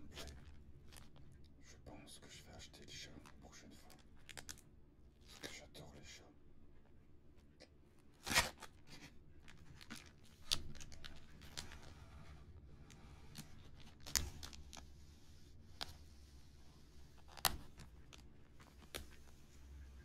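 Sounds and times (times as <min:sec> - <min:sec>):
plastic bag rustling: 0:08.1 - 0:20.0.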